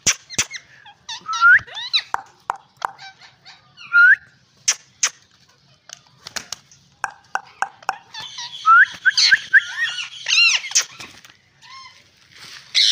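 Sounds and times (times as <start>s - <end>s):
parakeet chirping: 7.0s - 10.8s.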